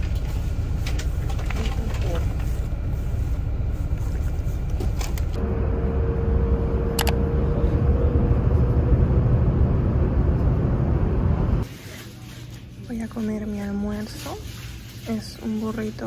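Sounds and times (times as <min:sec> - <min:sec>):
bus rumbling: 0:00.0 - 0:11.7.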